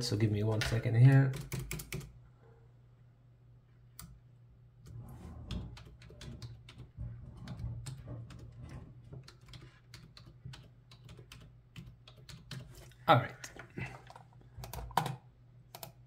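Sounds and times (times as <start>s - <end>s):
keyboard typing: 0.4s - 2.1s, 5.5s - 12.9s, 14.0s - 16.0s.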